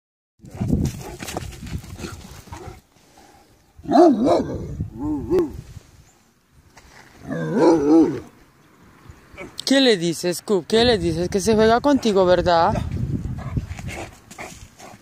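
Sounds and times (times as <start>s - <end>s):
scuffling on the ground: 0.5s - 2.9s, 6.6s - 7.4s, 12.8s - 15.0s
dog barking and woofing: 3.8s - 5.6s, 7.3s - 8.3s.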